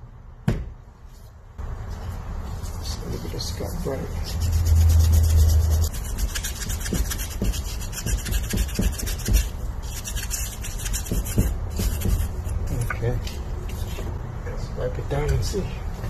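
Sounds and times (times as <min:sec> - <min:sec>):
wire brush scrubbing metal: 0:02.8 - 0:12.8.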